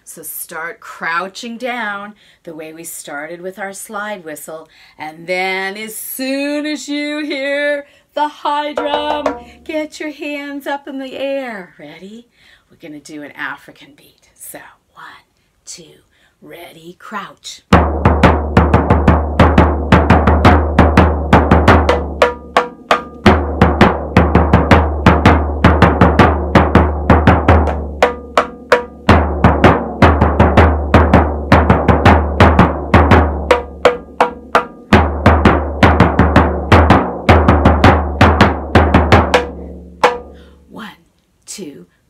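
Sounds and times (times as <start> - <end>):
high-pitched small drum beats: 8.7 - 9.6, 17.7 - 40.4
deep frame drum beats: 8.8 - 9.8, 17.7 - 40.4.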